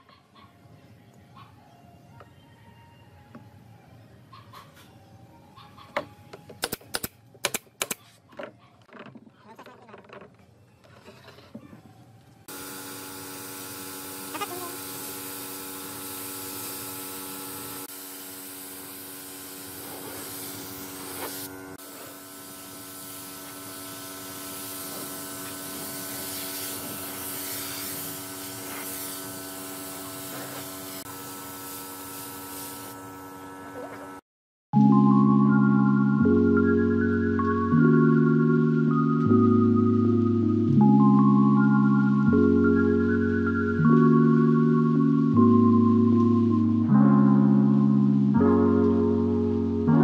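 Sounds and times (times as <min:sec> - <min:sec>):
spray gun hissing: 0:12.5 - 0:33.0.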